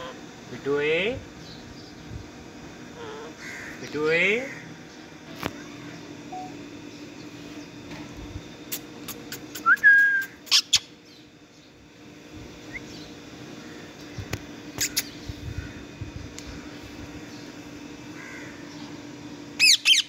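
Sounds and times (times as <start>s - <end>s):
parakeet harsh calls: 0.0s - 0.2s, 2.9s - 4.7s, 10.5s - 10.9s, 19.6s - 20.0s
steady low hum: 0.0s - 20.0s
parakeet whistle: 19.6s - 20.0s.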